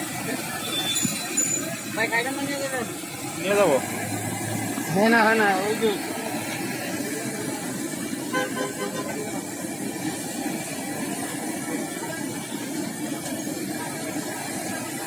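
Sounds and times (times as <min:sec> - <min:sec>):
batter sizzling in hot oil: 0:00.0 - 0:15.0
street traffic: 0:00.0 - 0:15.0
vehicle horn tooting: 0:08.3 - 0:09.2.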